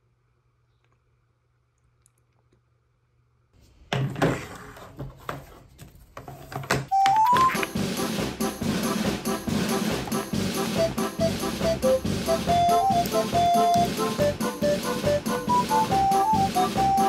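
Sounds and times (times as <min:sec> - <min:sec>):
music: 0:07.0 - 0:17.0
rising run of notes: 0:09.5 - 0:17.0.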